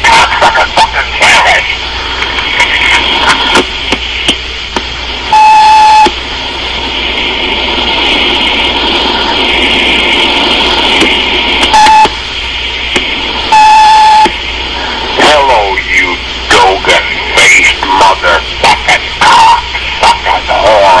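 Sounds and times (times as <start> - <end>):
tape and phone line hiss: 0.0 - 21.0
answering machine beep: 5.3 - 6.1, 11.7 - 12.1, 13.5 - 14.3.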